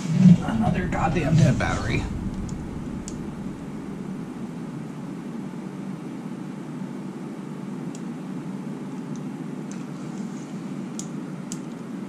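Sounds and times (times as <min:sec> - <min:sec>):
low mechanical hum with hiss: 0:00.0 - 0:12.0
faint light clicks: 0:10.9 - 0:11.8.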